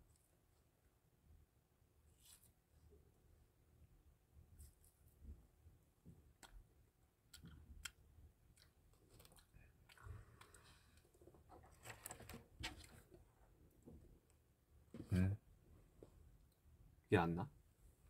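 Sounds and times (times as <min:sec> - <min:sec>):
faint clicks and handling noises: 0:06.0 - 0:15.2.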